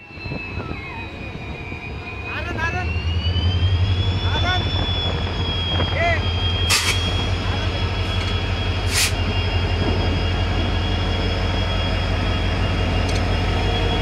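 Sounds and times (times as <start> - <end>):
diesel locomotive rumble: 0.0 - 14.0
high whine: 0.0 - 14.0.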